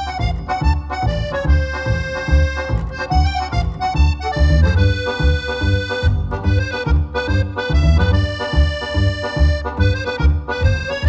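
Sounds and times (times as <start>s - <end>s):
accordion polka music: 0.0s - 11.0s.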